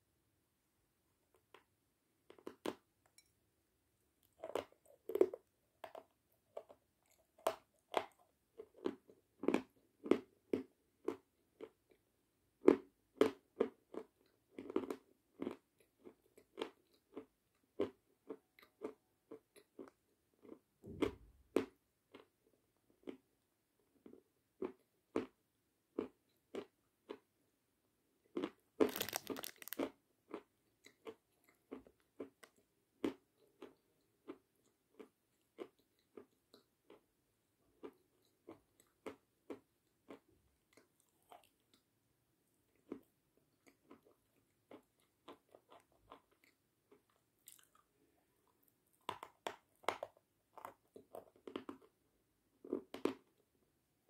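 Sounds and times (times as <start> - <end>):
chalk crunching when chewed: 28.4 - 37.0, 42.7 - 47.9.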